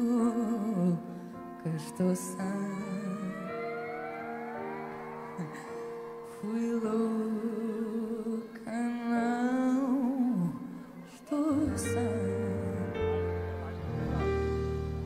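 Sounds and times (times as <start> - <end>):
sustained keyboard chords: 11.5 - 15.0.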